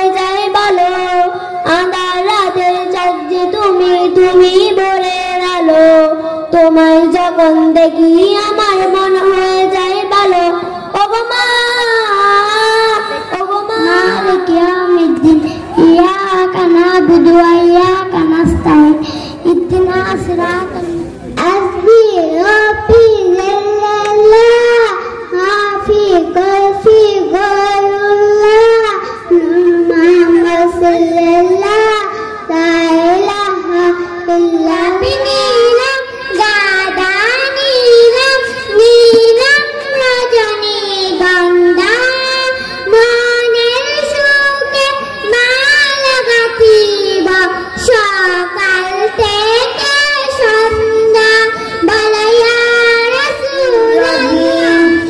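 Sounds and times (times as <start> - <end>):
high-pitched voice singing: 11.1 - 18.8, 52.4 - 55.0
high solo voice singing: 13.1 - 14.9, 53.3 - 55.0.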